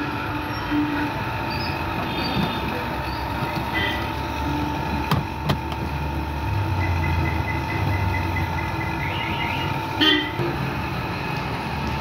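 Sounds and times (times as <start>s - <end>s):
vehicle engine rumbling: 0.0s - 12.0s
car horn toot: 3.7s - 4.1s, 9.1s - 10.4s.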